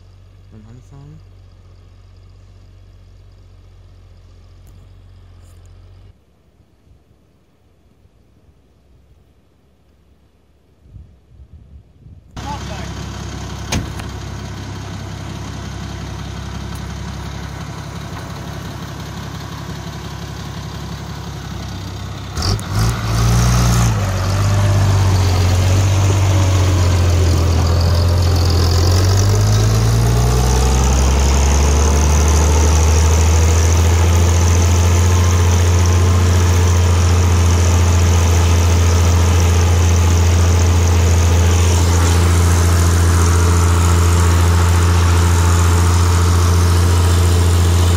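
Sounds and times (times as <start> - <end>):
tractor diesel engine running: 0.0 - 6.2, 12.4 - 47.9
engine knocks: 13.2 - 21.7.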